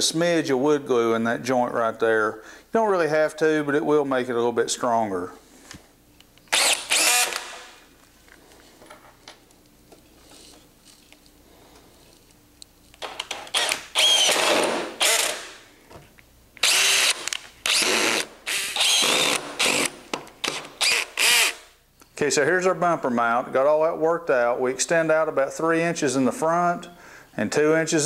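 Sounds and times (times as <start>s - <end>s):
cordless drill driving screws: 6.5s - 7.8s, 13.4s - 15.6s, 16.6s - 21.7s
small handling sounds: 7.9s - 13.3s.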